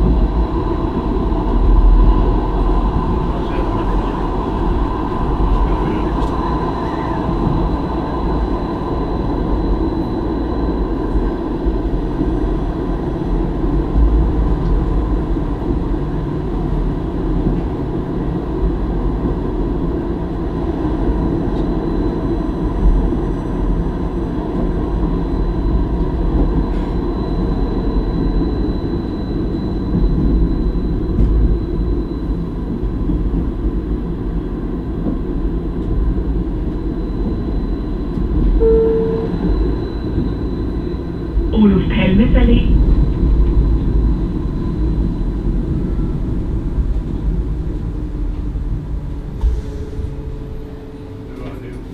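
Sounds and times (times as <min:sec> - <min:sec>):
tram wheels rumbling on rail: 0:00.0 - 0:51.9
thin high tone: 0:38.6 - 0:40.0.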